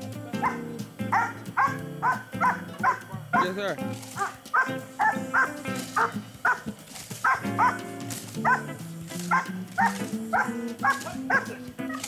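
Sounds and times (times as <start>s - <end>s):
background music: 0.0s - 12.0s
dog barking: 0.4s - 3.5s, 4.1s - 7.8s, 8.4s - 12.0s.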